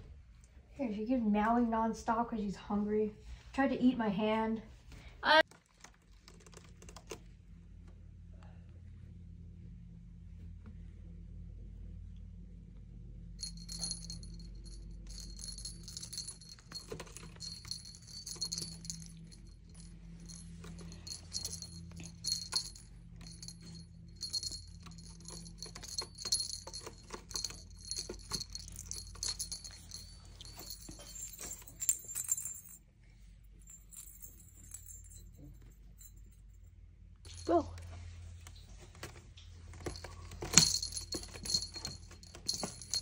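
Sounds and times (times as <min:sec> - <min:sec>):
small bell jingling: 0:13.4 - 0:32.8, 0:33.6 - 0:36.6, 0:37.3 - 0:37.8, 0:39.7 - 0:43.0.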